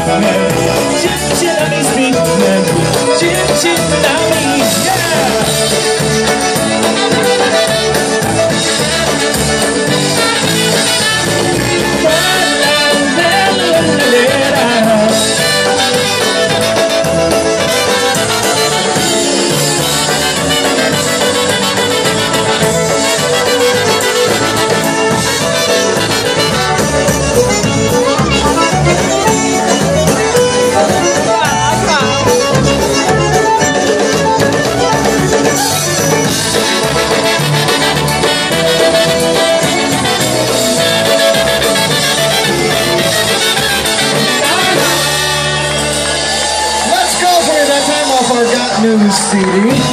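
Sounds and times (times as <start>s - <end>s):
steady bass beat: 0.0s - 46.8s
accordion: 0.0s - 49.9s
trumpets: 0.0s - 49.9s
fiddle: 15.4s - 49.9s.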